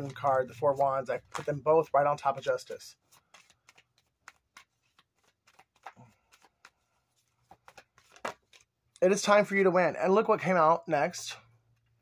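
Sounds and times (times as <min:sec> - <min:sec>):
cards being shuffled: 0:00.0 - 0:08.8.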